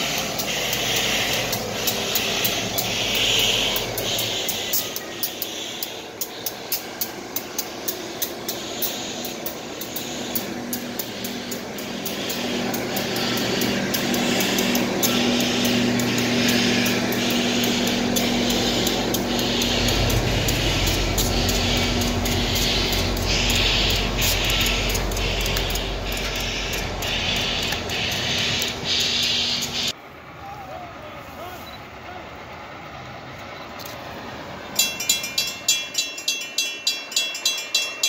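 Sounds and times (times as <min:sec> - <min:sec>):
train wheels clicking on rail joints: 0:00.0 - 0:30.0, 0:33.0 - 0:38.0
low rumbling hum: 0:00.0 - 0:35.7.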